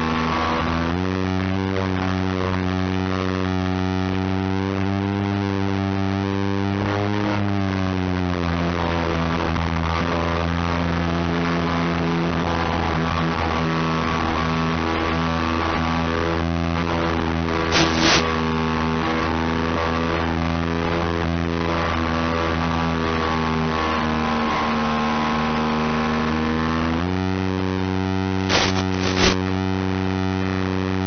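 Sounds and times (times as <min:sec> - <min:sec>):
model aircraft motor buzzing: 0:17.7 - 0:18.5, 0:28.4 - 0:29.6.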